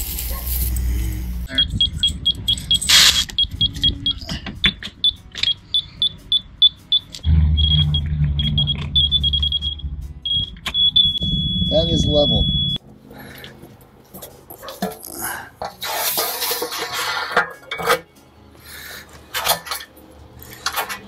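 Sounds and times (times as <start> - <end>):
short high beeps: 5.5 - 12.8.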